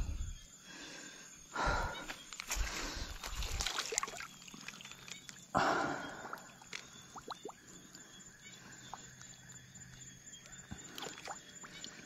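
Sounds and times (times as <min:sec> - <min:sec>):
water splashing: 0:03.4 - 0:05.3
water dripping: 0:06.3 - 0:07.6.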